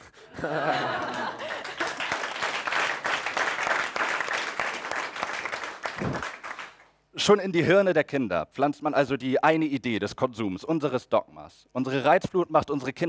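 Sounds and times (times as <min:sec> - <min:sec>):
people laughing: 0:00.2 - 0:02.3
audience clapping: 0:00.5 - 0:07.0.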